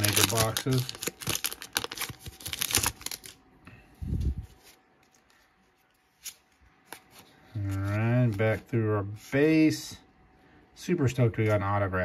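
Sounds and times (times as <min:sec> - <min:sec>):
foil wrapper crinkling and tearing: 0:00.0 - 0:03.4.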